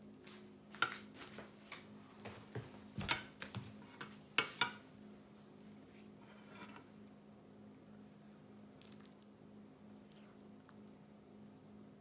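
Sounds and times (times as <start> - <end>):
faint steady hum: 0.0 - 12.0
tableware clicking and tapping: 3.0 - 4.8.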